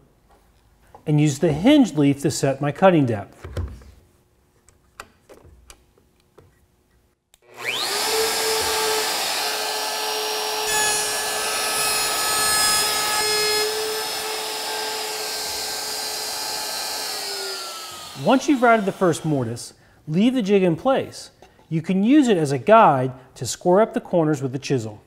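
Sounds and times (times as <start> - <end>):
trim router whining: 7.4 - 19.5.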